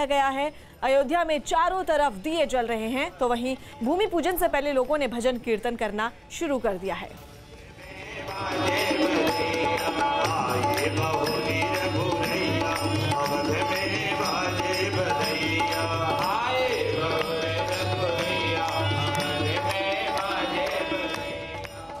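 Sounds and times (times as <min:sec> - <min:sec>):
harmonium chords: 0:08.1 - 0:22.0.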